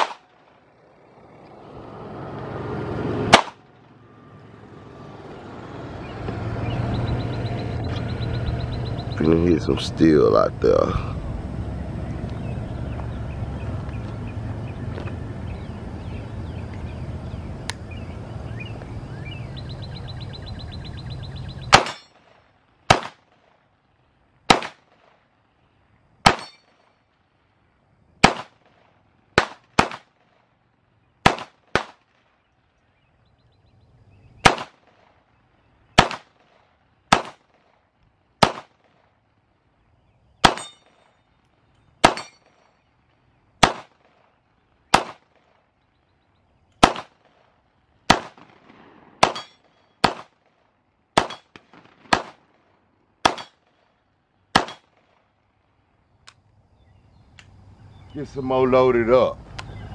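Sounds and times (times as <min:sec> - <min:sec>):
pistol shots: 0:00.0 - 0:00.7, 0:03.3 - 0:03.6, 0:21.7 - 0:23.6, 0:24.4 - 0:25.2, 0:26.2 - 0:26.8, 0:28.2 - 0:30.5, 0:31.2 - 0:32.4, 0:34.4 - 0:35.2, 0:35.9 - 0:39.1, 0:40.4 - 0:41.1, 0:42.0 - 0:42.7, 0:43.6 - 0:45.7, 0:46.8 - 0:53.8, 0:54.5 - 0:55.2
steel targets pinging: 0:21.7 - 0:22.3, 0:26.2 - 0:26.9, 0:40.4 - 0:41.2, 0:42.0 - 0:42.8, 0:48.1 - 0:50.3, 0:51.2 - 0:52.4, 0:53.2 - 0:53.7, 0:54.6 - 0:55.0.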